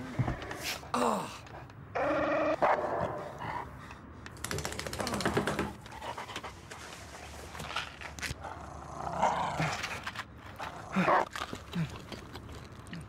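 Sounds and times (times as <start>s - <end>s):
dog-like growls: 8.4s - 12.0s.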